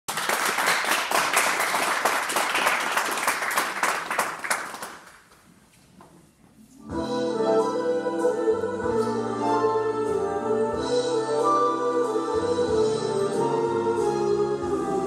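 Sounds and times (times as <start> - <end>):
audience applauding: 0.1 - 5.4.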